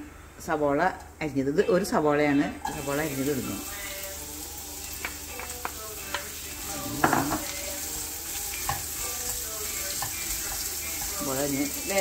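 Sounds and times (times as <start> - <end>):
onion sizzling in hot oil: 2.6 - 12.0.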